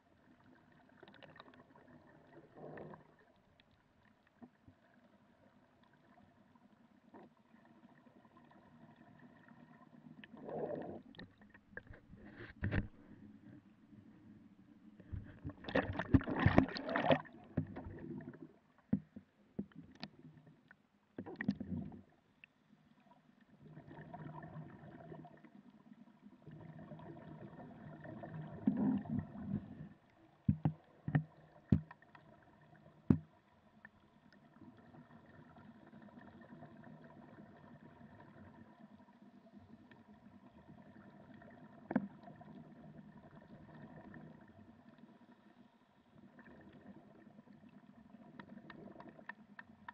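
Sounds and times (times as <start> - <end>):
low underwater hum: 0.0 - 49.9
underwater splashing rush: 15.5 - 18.4.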